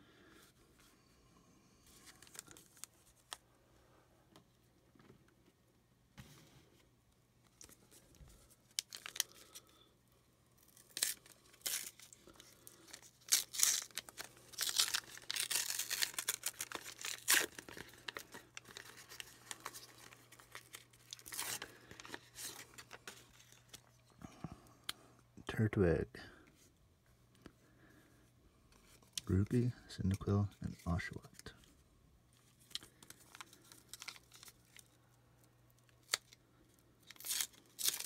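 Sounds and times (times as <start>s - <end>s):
foil wrapper tearing and crinkling: 8.7s - 9.7s, 10.6s - 23.9s, 32.6s - 35.0s, 35.9s - 36.4s, 37.0s - 38.0s.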